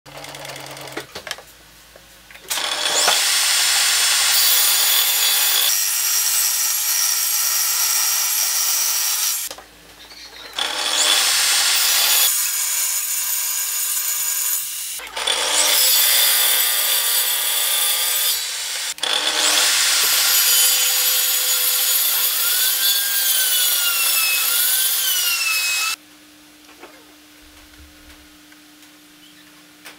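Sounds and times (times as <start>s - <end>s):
table saw cutting wood: 2.5s - 9.5s, 10.6s - 26.0s.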